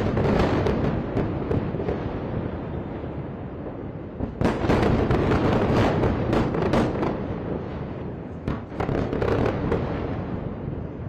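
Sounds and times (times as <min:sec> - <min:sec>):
explosions cracks and bangs: 0:00.0 - 0:02.3, 0:04.2 - 0:10.4.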